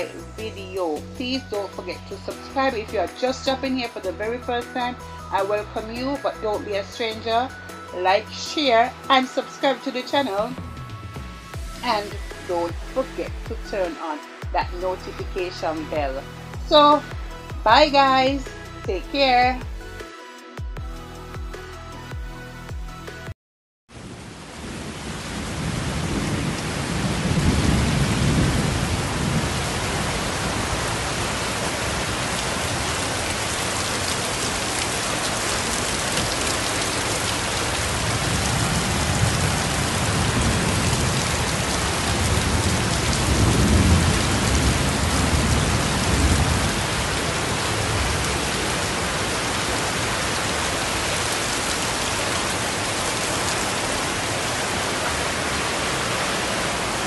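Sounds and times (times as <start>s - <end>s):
heavy rain pouring: 23.9s - 57.0s
floodwater running: 27.4s - 57.0s.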